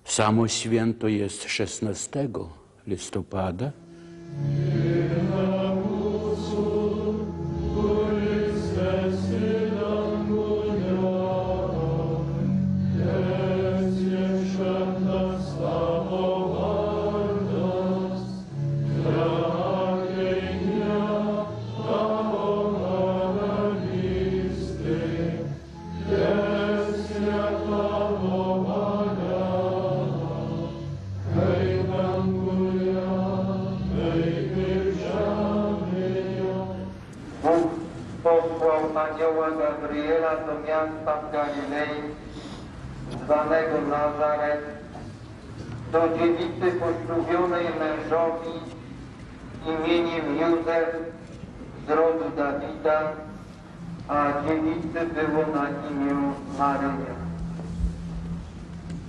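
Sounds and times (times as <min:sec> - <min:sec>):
congregation singing a hymn: 0:04.1 - 0:51.2.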